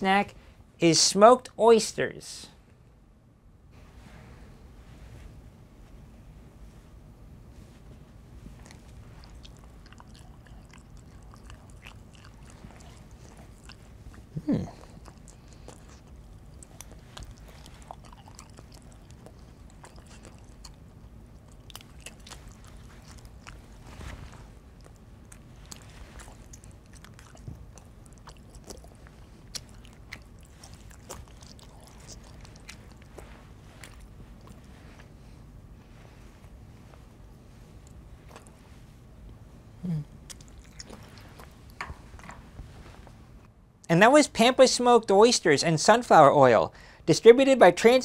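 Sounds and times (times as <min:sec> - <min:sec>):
person chewing: 0:08.4 - 0:35.5, 0:39.8 - 0:43.2.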